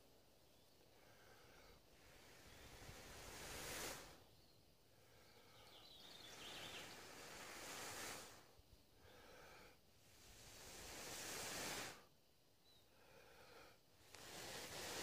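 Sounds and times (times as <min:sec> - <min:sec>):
breaths blown into dry grass: 0:02.0 - 0:04.3, 0:06.2 - 0:08.6, 0:10.0 - 0:12.2, 0:14.0 - 0:15.0.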